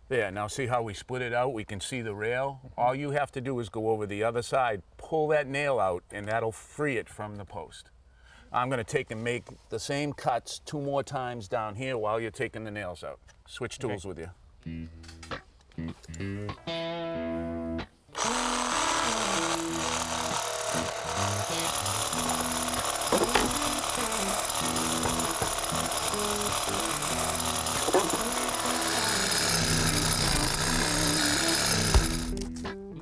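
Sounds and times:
reciprocating saw cutting wood: 18.1s - 32.6s
background music: 19.0s - 33.0s.

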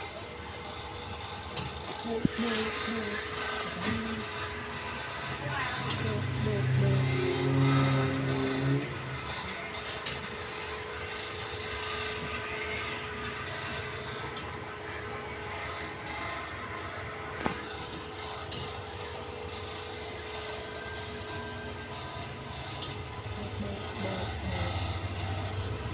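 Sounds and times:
train rumbling: 0.0s - 10.9s.

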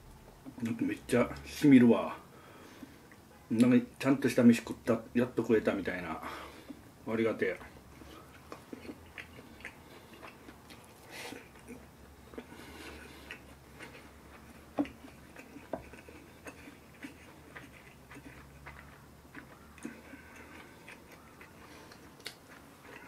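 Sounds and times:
low steady hum: 0.0s - 23.0s
faint chewing: 5.6s - 23.0s.

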